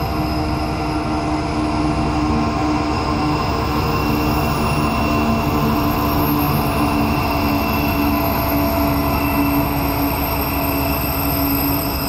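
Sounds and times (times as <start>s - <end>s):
diesel locomotive engine drone: 0.0s - 12.0s
low rumble of train: 0.0s - 12.0s.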